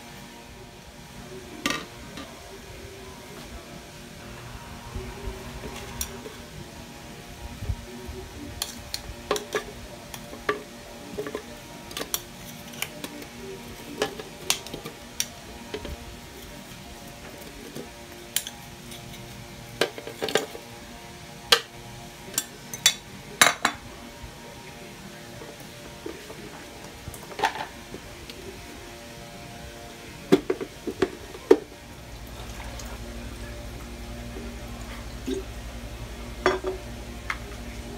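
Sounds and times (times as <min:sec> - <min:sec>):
faint background music: 0:00.0 - 0:37.9.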